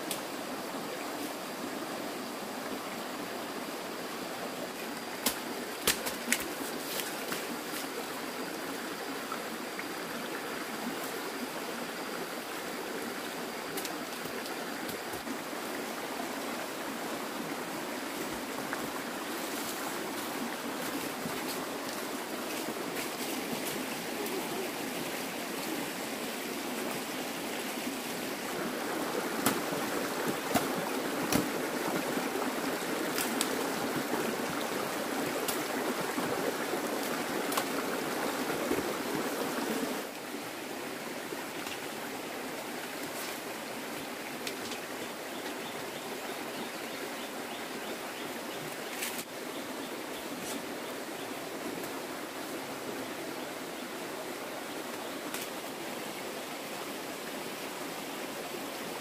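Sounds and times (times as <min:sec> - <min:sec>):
stream water flowing: 0:00.0 - 0:59.0.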